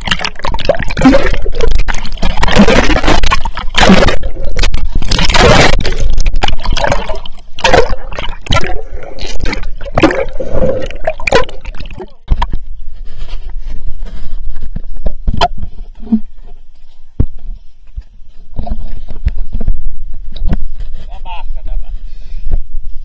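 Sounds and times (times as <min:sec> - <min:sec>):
underwater bubbles rushing: 0:00.0 - 0:12.5
water splashes: 0:00.0 - 0:12.5
water sloshing and gurgling: 0:00.0 - 0:17.4.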